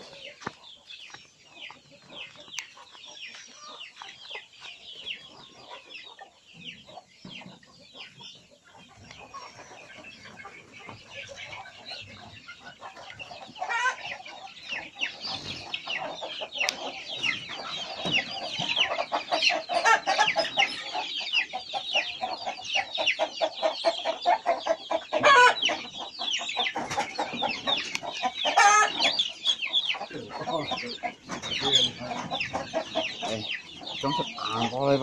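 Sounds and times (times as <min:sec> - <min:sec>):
chickens clucking: 0:00.0 - 0:35.0.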